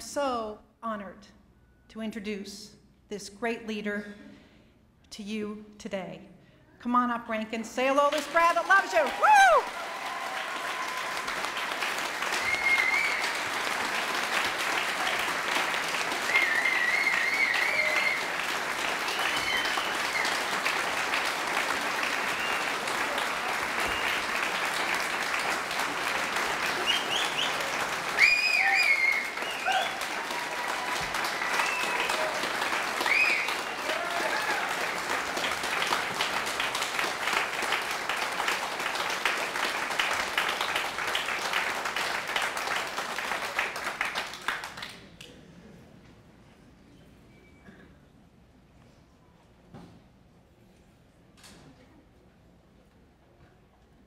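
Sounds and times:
crowd applauding: 0:08.1 - 0:45.3
whoops and cheers: 0:09.0 - 0:13.5, 0:16.2 - 0:18.5, 0:19.1 - 0:20.6, 0:28.1 - 0:35.0.

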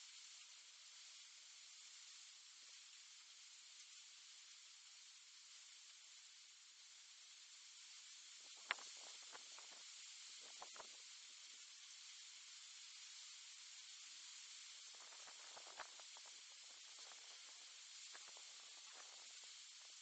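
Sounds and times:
faint outdoor hiss: 0:00.0 - 0:20.0.

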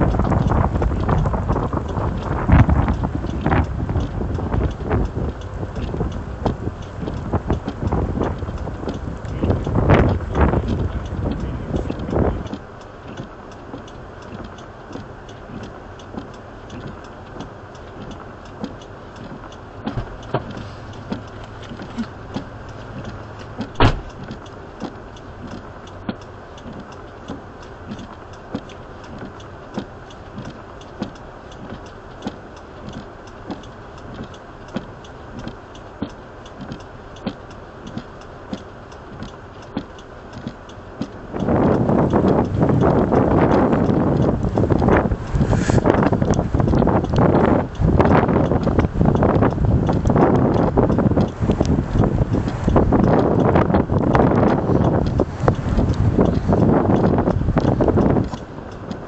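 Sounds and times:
car engine idling: 0:00.0 - 0:59.0
regular ticking: 0:00.0 - 0:59.0
sharp click: 0:19.8 - 0:59.0.

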